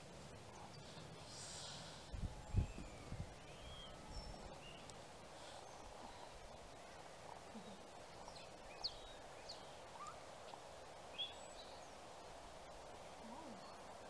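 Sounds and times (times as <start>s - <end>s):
quiet background hiss: 0.0s - 14.0s
bird chirps: 2.4s - 6.4s.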